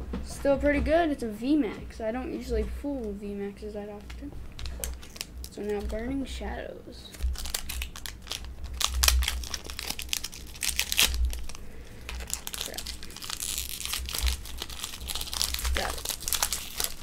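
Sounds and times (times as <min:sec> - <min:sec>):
foil wrapper crinkling and tearing: 0:04.0 - 0:06.1, 0:07.1 - 0:17.0.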